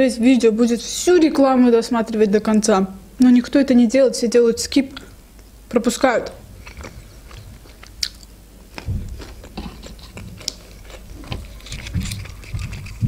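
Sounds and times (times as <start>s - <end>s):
person chewing food: 6.2s - 13.0s.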